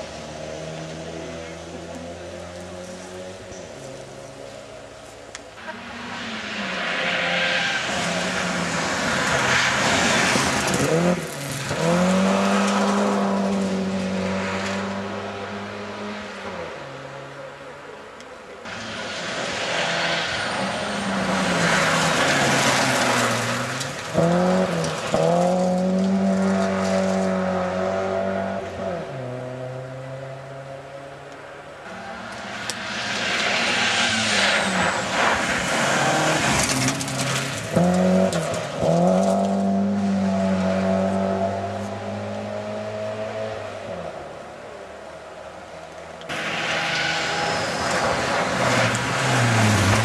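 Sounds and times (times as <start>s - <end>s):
rally car engine revving: 5.6s - 16.8s, 18.6s - 30.8s, 31.9s - 44.2s, 46.3s - 50.0s
tyres hissing on gravel: 46.3s - 50.0s.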